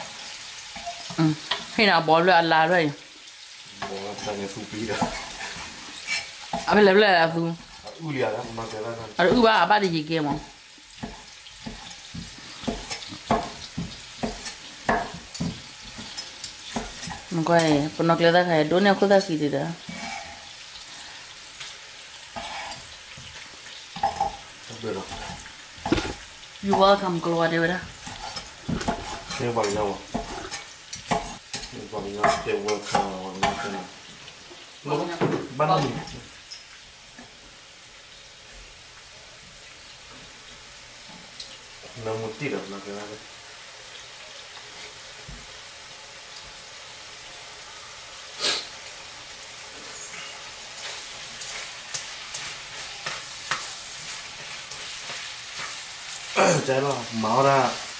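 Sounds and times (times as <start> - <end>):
food sizzling in a pan: 0.0 - 57.9
loud hiss: 48.3 - 48.8.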